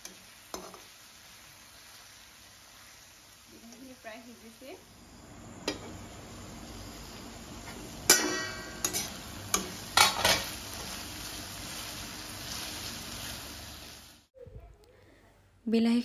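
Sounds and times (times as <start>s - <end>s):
vegetables sizzling in hot oil: 0.0s - 14.3s
metal spatula scraping a pan: 8.1s - 10.5s.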